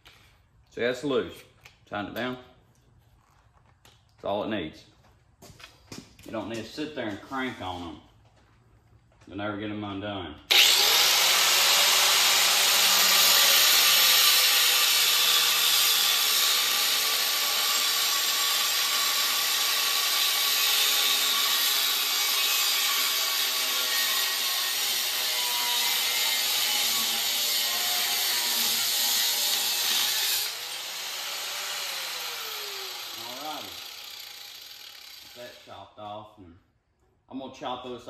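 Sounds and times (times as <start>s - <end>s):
grinder motor running: 10.5s - 35.6s
angle grinder cutting steel: 10.5s - 35.8s.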